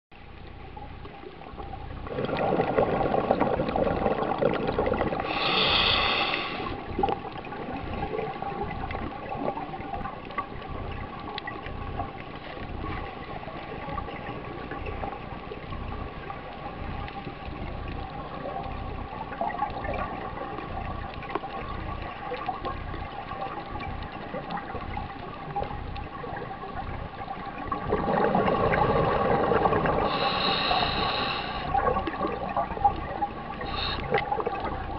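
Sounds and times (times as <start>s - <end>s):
steady underwater noise: 0.1s - 34.9s
regulator bubbling underwater: 0.2s - 34.9s
air hiss: 5.3s - 6.8s, 30.0s - 31.7s, 33.7s - 34.2s.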